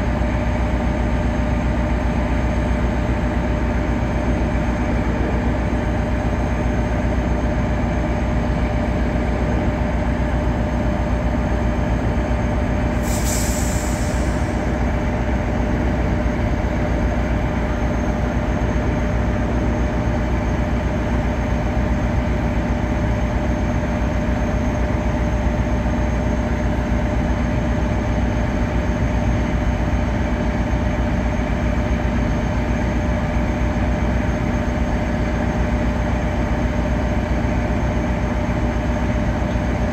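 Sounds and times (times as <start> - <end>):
diesel locomotive idling: 0.0 - 39.9
air hiss: 13.0 - 14.7.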